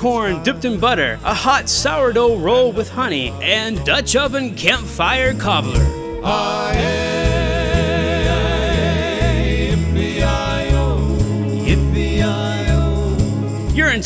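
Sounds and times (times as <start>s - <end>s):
bass notes: 0.0s - 14.0s
guitar: 0.0s - 14.0s
men singing in close harmony: 6.1s - 13.8s.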